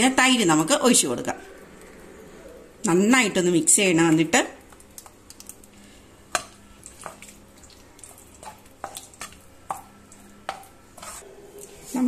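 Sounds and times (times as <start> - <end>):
spatula scraping a pan: 8.4 - 12.0.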